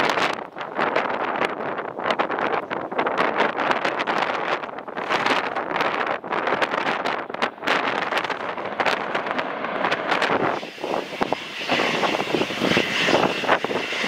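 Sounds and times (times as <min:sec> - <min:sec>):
wind buffeting microphone: 0:00.0 - 0:14.0
jet engines whining: 0:08.0 - 0:14.0.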